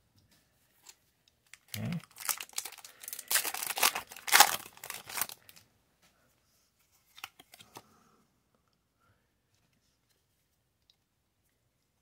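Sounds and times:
foil wrapper tearing and crinkling: 1.5s - 5.6s.

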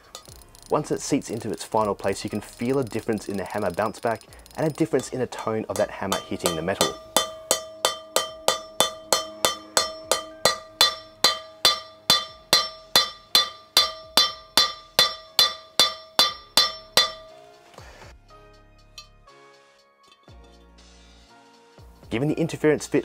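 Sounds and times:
hammer striking steel: 0.0s - 17.4s
faint background music: 0.0s - 23.0s.

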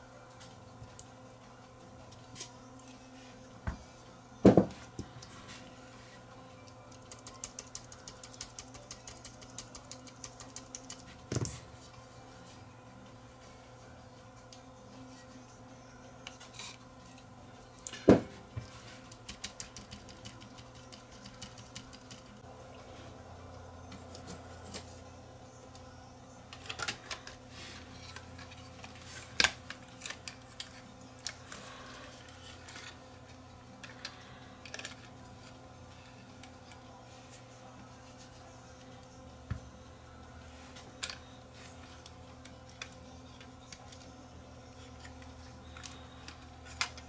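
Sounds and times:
faint steady hum: 0.0s - 47.0s
tools clicking and tapping: 6.9s - 11.6s, 19.0s - 22.4s.

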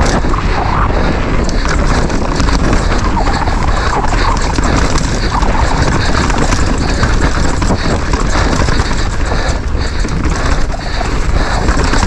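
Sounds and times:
bike rattling: 0.0s - 12.0s
bike tyres rolling over dirt and rock: 0.0s - 12.0s
wind buffeting microphone: 0.0s - 12.0s.

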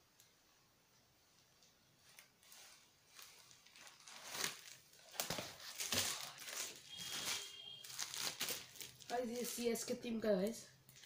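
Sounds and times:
paper and plastic wrapping tearing: 2.2s - 9.8s.

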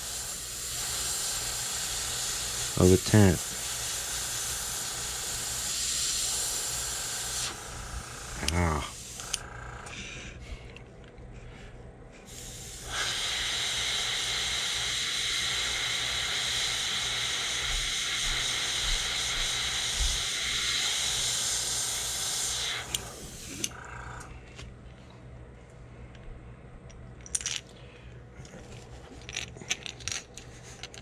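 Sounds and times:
airbrush spraying paint: 0.0s - 9.5s, 12.3s - 23.8s.

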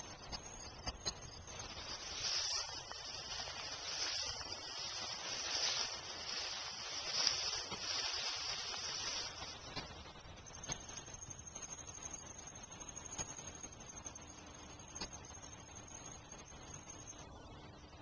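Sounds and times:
tall grass swishing and rustling: 0.0s - 14.2s.

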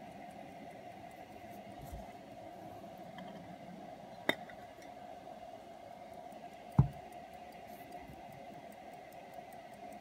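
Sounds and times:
watch ticking: 0.0s - 1.3s, 5.9s - 10.0s
steady low hum: 0.0s - 10.0s.

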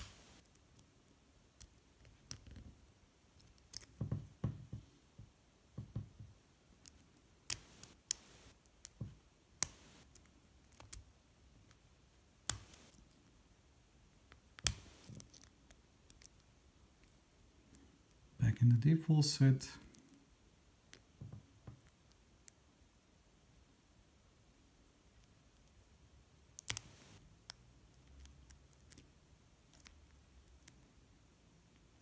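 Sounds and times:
soft handling thumps: 3.9s - 6.4s.

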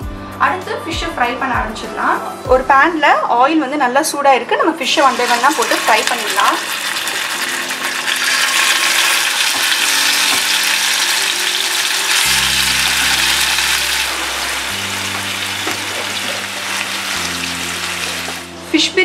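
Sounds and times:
soft background music: 0.0s - 19.0s
fish sizzling in hot oil: 4.8s - 18.5s.

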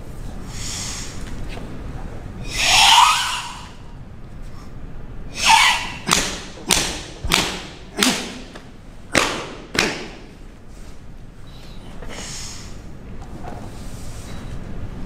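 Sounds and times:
open-hand slaps on bare skin: 6.1s - 8.4s, 9.1s - 10.2s.

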